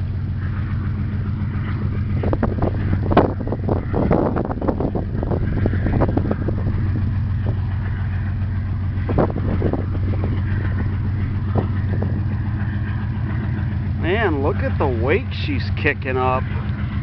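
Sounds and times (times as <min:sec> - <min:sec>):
tug diesel engine drone: 0:00.0 - 0:17.0.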